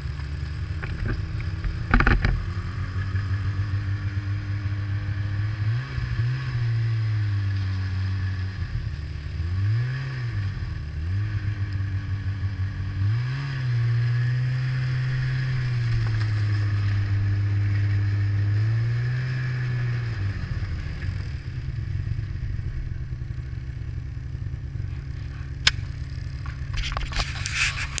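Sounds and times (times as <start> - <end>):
snowmobile engine revving: 0.0 - 28.0
sharp click: 25.6 - 26.0
rustling against microphone: 26.6 - 28.0.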